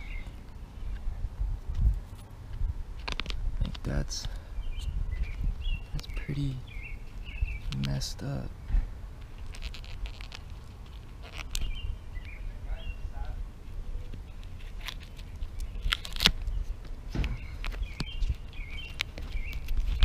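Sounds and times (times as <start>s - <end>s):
small birds chirping: 0.0s - 1.2s, 3.6s - 20.0s
steady low rumble: 0.0s - 20.0s
hand scraping sealant: 9.2s - 11.7s.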